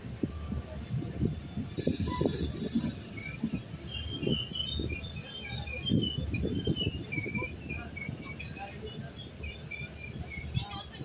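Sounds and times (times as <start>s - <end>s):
brief hiss: 1.8s - 4.4s
short high squeaks: 1.8s - 8.1s.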